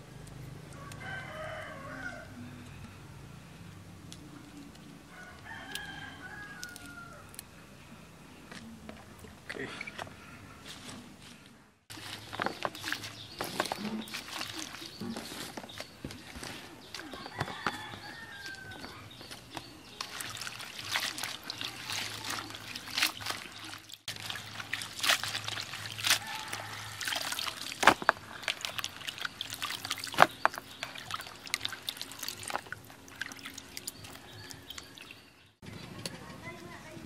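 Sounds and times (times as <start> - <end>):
water sloshing and splashing: 11.9 - 35.5
water trickling: 11.9 - 35.5.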